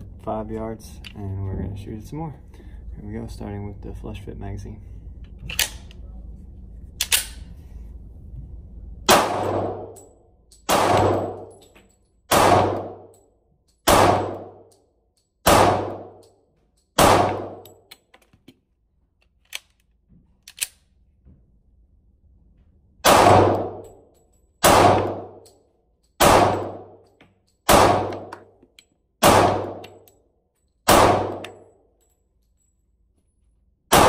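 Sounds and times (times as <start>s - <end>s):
pistol shots echoing indoors: 9.1s - 17.9s, 23.0s - 24.0s, 24.6s - 31.9s.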